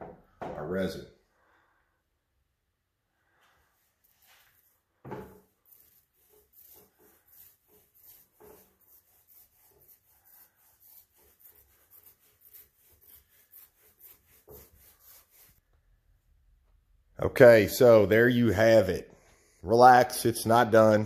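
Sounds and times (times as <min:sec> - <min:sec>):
knock: 0:00.0 - 0:00.7
paint roller swishing on wood: 0:03.9 - 0:15.6.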